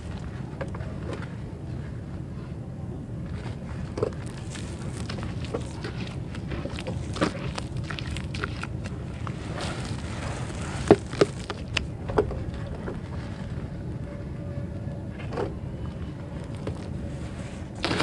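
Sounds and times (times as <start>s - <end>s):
wet mud squelching and crackling: 0.0s - 1.2s, 3.3s - 13.9s, 15.9s - 18.0s
steady low rumble: 0.0s - 18.0s.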